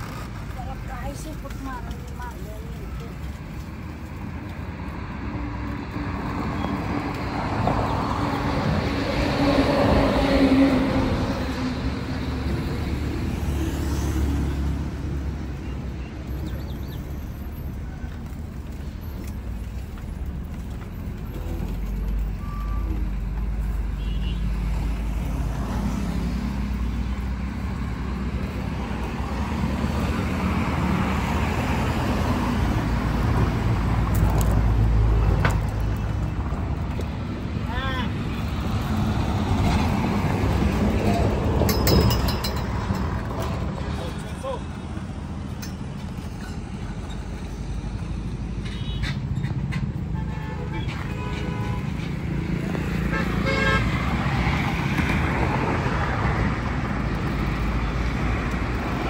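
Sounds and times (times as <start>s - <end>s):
heavy vehicles rumbling past: 0.0s - 59.0s
road traffic passing: 0.0s - 59.0s.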